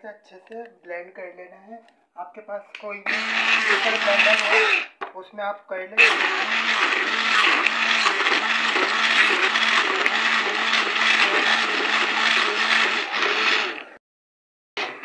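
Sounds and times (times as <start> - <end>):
hand blender whirring: 3.0 - 5.0, 6.0 - 14.0, 14.8 - 15.0.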